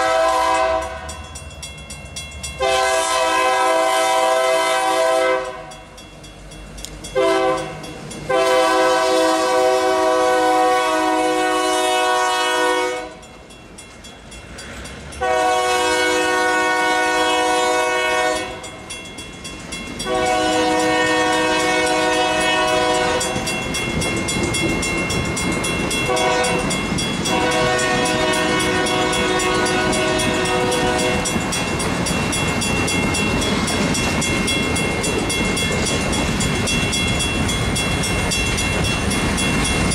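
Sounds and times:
locomotive air horn blasts: 0:00.0 - 0:01.2, 0:02.6 - 0:05.8, 0:07.2 - 0:13.2, 0:15.2 - 0:18.6, 0:20.0 - 0:23.4, 0:26.1 - 0:26.7, 0:27.3 - 0:31.3
train wheels on rails: 0:00.0 - 0:39.9
wheels clacking over rail joints: 0:18.2 - 0:39.9.

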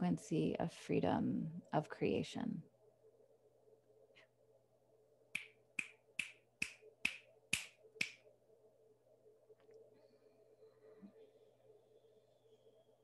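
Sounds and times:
faint steady hum: 0:00.0 - 0:13.0
sharp snaps: 0:05.3 - 0:08.2.

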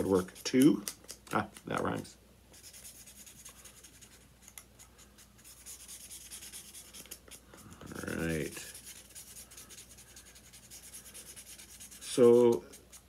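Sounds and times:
marker scratching on cardboard: 0:02.6 - 0:13.0.

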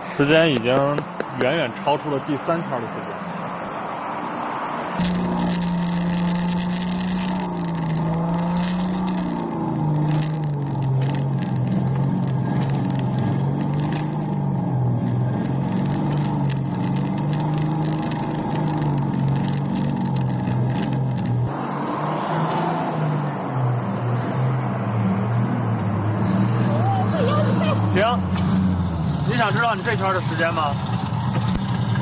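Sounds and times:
go-kart engine running: 0:05.0 - 0:21.5, 0:26.6 - 0:32.0.

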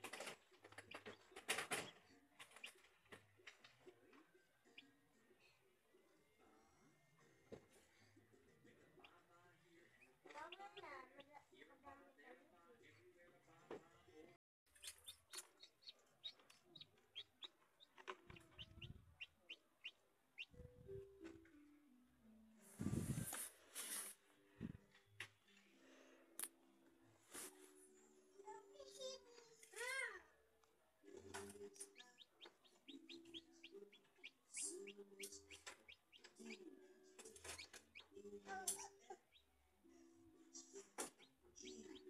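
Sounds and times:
chick peeping: 0:14.7 - 0:20.8, 0:31.5 - 0:36.7, 0:37.3 - 0:38.1, 0:41.0 - 0:42.0.

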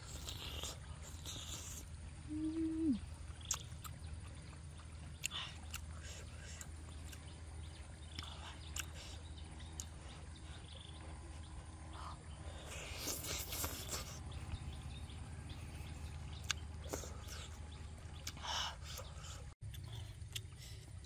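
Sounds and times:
steady low hum: 0:00.0 - 0:21.0
mouth clicks and lip smacks: 0:03.4 - 0:04.0.

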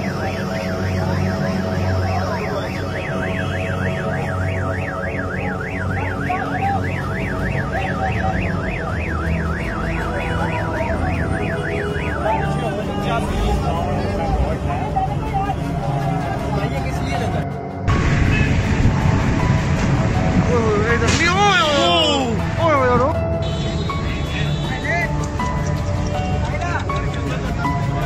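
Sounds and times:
car alarm warbling: 0:00.0 - 0:13.6
low rumble: 0:17.9 - 0:21.3.

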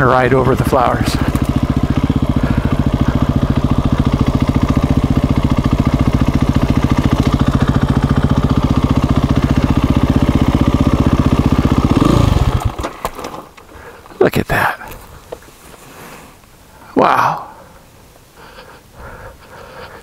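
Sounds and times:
motorcycle engine at low revs: 0:00.0 - 0:14.2.

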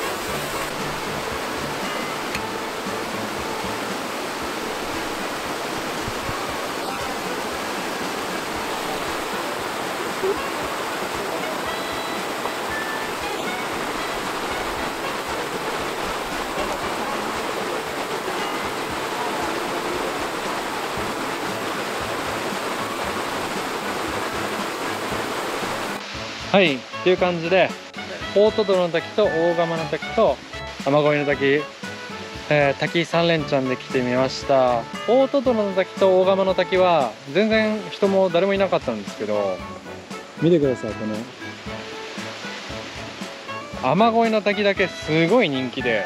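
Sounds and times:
waterfall rushing: 0:00.0 - 0:46.0.

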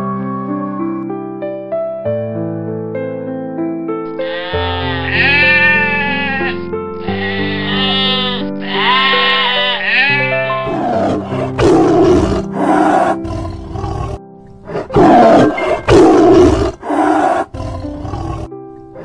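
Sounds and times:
background music: 0:00.0 - 0:19.0
goat bleating: 0:04.2 - 0:11.4
lion roaring: 0:10.6 - 0:18.5.

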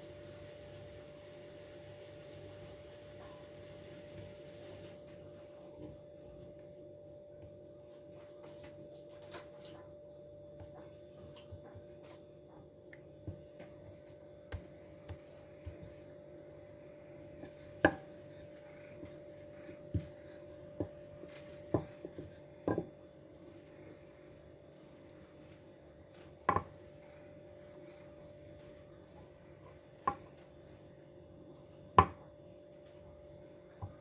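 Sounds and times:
faint steady hum: 0:00.0 - 0:34.0
knocks and taps on kitchen counter: 0:21.7 - 0:22.9.

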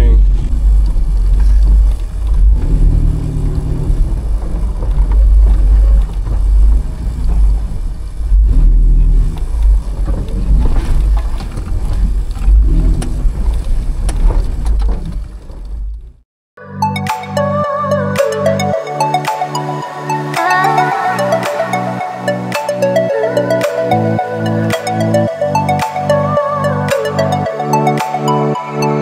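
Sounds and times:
engine rumbling: 0:00.0 - 0:16.2.

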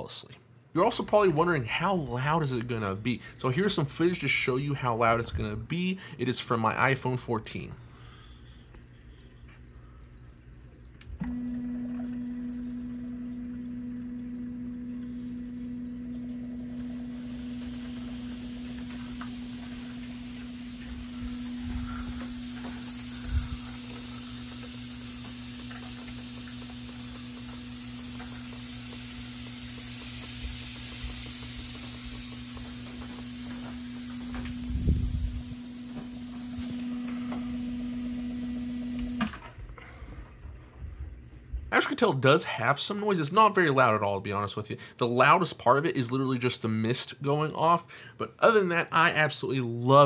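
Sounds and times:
pump humming: 0:07.4 - 0:42.4
mist spraying hiss: 0:15.2 - 0:39.4.

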